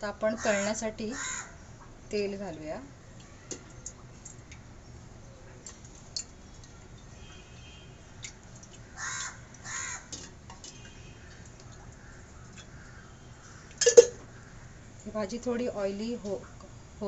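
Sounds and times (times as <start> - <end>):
crow cawing: 0.4 - 1.6, 9.0 - 10.2, 11.2 - 14.6.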